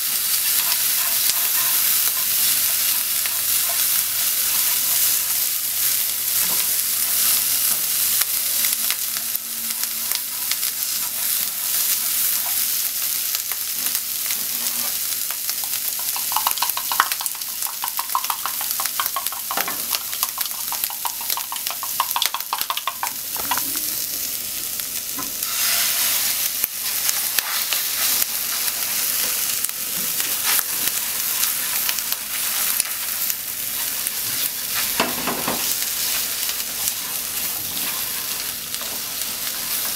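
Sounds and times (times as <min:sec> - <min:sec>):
egg sizzling in pan: 0:00.0 - 0:39.9
ham sizzling in a frying pan: 0:00.0 - 0:39.9
chopsticks tapping pan: 0:15.6 - 0:23.7.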